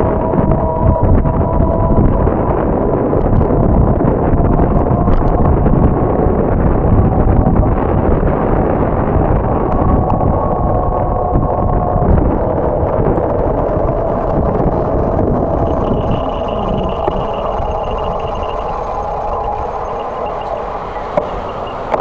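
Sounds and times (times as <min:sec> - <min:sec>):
bicycle road rumble: 0:00.0 - 0:22.0
wind buffeting microphone: 0:00.0 - 0:22.0
thin steady whine: 0:09.0 - 0:22.0
car traffic: 0:13.3 - 0:22.0.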